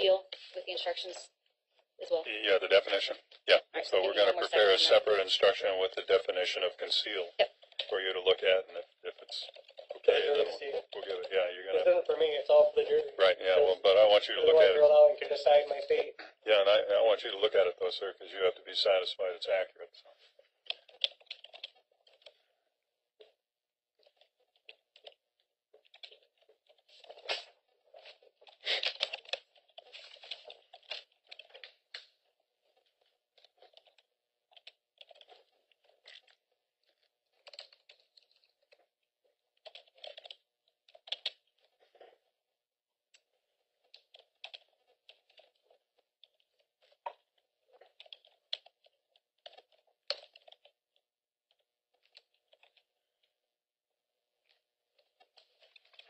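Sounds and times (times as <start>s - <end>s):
faint keyboard typing: 2.1s - 23.4s, 24.0s - 42.4s, 43.1s - 53.4s, 54.3s - 56.0s.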